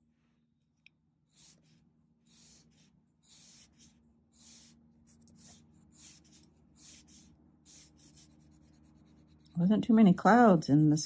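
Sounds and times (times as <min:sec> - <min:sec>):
pencil shading on paper: 0:01.2 - 0:09.7.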